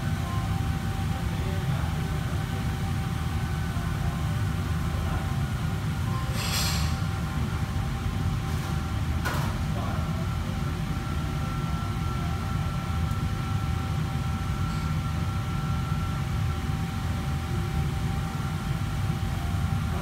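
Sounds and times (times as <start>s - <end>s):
faint steady whines: 0.0s - 20.0s
kitchen machinery drone: 0.0s - 20.0s.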